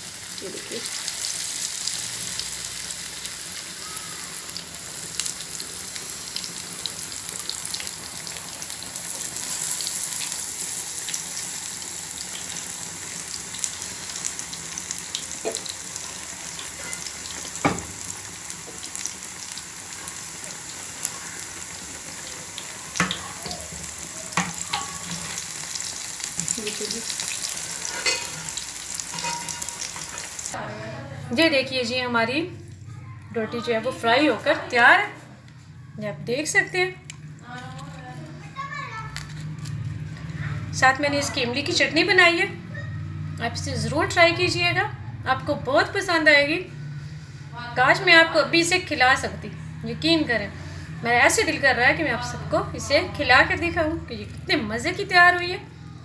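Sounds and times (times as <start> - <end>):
battered food deep-frying in oil: 0.0 - 30.6, 36.1 - 42.6.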